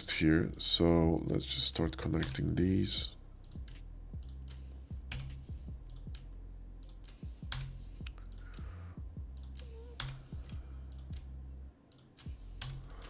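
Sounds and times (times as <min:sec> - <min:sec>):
steady low hum: 0:00.0 - 0:13.0
keyboard and mouse clicking: 0:03.4 - 0:08.6, 0:09.3 - 0:11.3, 0:11.9 - 0:13.0.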